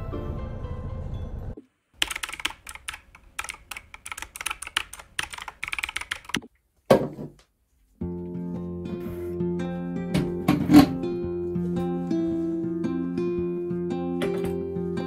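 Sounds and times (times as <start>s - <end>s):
soft music: 0.0s - 1.6s, 8.0s - 15.0s
computer keyboard typing: 2.0s - 6.5s.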